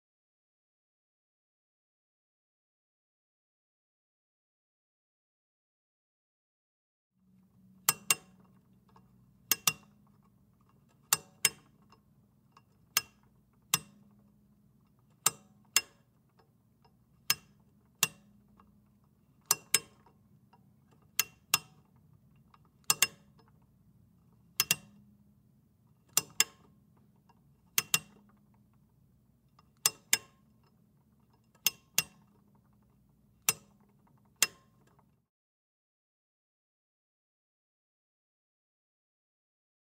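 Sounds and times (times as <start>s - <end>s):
faint low hum: 7.2s - 31.6s.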